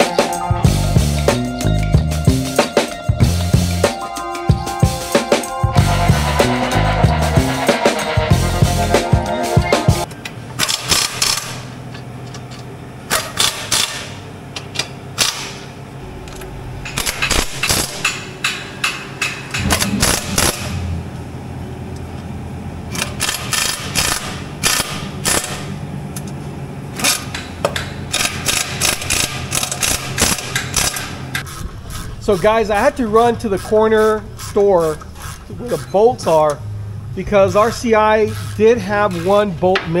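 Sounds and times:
pneumatic tool rapid clicking: 10.6 - 11.7, 13.1 - 14.2, 17.0 - 18.2, 22.9 - 25.7, 27.0 - 27.4, 28.1 - 32.1
low hum: 15.6 - 18.4, 19.2 - 26.9.

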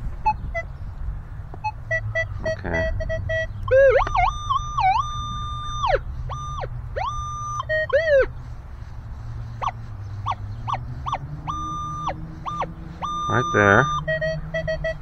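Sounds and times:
metal detector tones: 1.9 - 8.2, 11.1 - 15.0.

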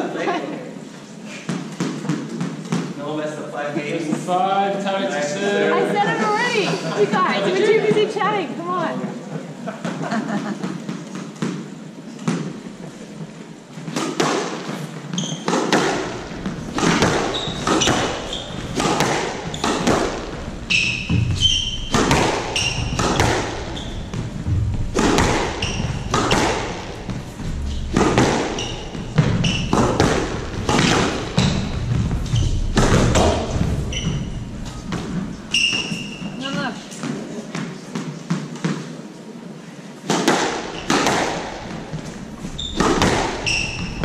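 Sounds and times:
rackets striking squash ball: 1.4 - 3.0, 10.6 - 39.0, 40.0 - 44.0
shoes squeaking on wooden floor: 10.7 - 38.8, 40.4 - 44.0
ball thudding off walls: 15.5 - 34.0, 40.1 - 44.0.

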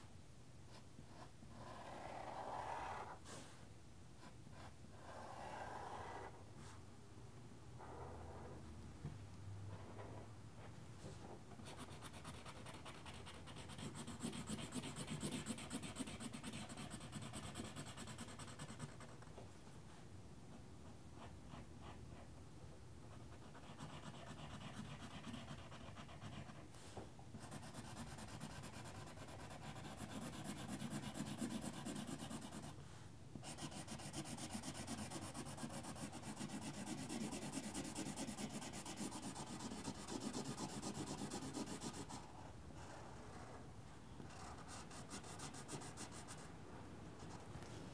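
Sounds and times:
marker scratching on paper: 27.4 - 32.8, 33.4 - 42.2.

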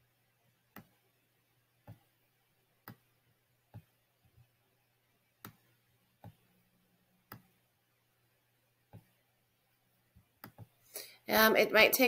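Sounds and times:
computer mouse clicks: 0.7 - 1.0, 2.8 - 3.1, 5.4 - 6.4, 7.3 - 7.6, 10.4 - 10.8.

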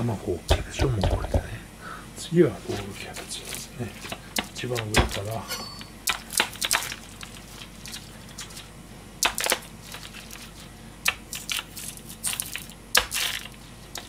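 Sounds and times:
knife cutting cabbage crunching: 9.2 - 14.0.

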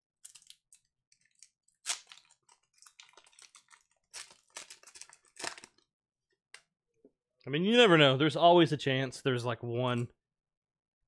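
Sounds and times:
cards shuffling and rustling: 1.2 - 5.8.

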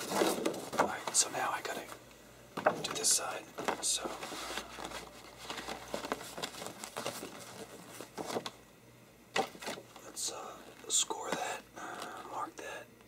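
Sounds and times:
posterboard rustling and scraping: 0.0 - 1.3, 2.6 - 8.6.

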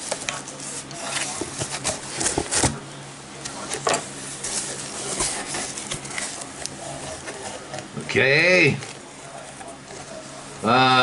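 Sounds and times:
cardboard and paper rustling: 0.0 - 2.8, 3.5 - 8.0.

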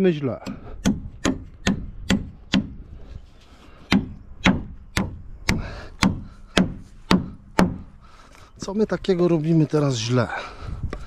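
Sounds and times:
hammer nailing wood: 0.4 - 2.8, 3.9 - 7.8.

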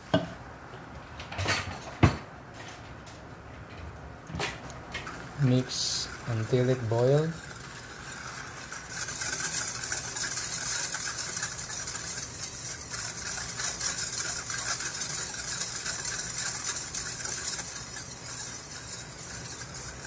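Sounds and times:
wire whisk scraping a metal pot: 5.0 - 20.0.

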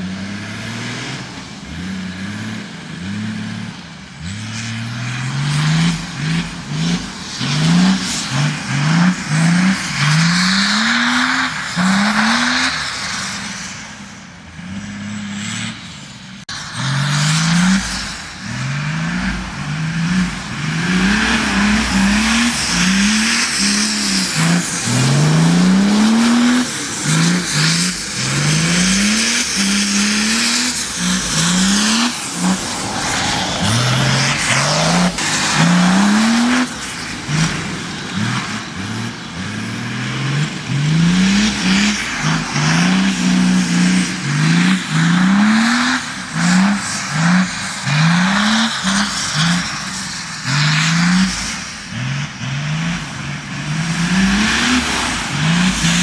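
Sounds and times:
diesel engine revving hard: 0.0 - 13.8, 14.5 - 56.0.

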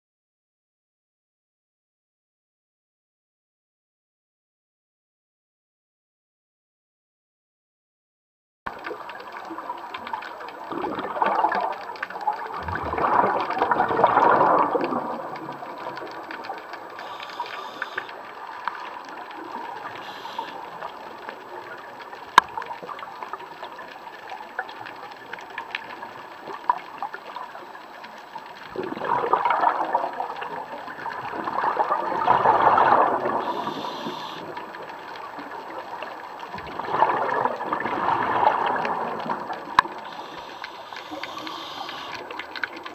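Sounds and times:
regulator bubbles gurgling: 8.7 - 42.9
underwater hiss: 17.0 - 18.2, 19.7 - 20.9, 32.7 - 34.6, 40.0 - 42.4.

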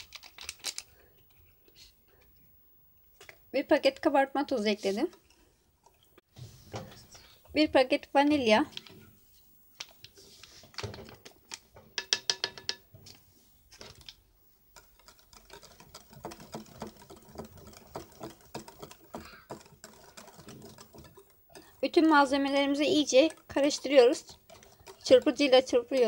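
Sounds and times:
whisk clicking against glass bowl: 14.7 - 26.0.

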